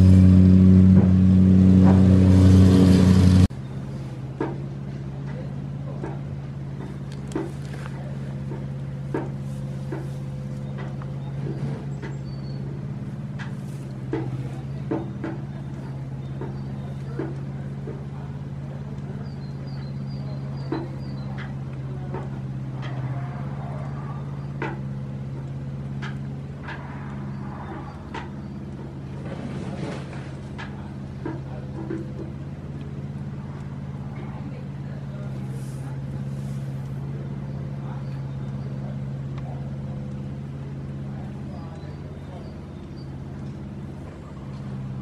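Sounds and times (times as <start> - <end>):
low mechanical hum: 0.0 - 45.0
small clicks and knocks: 24.5 - 29.0.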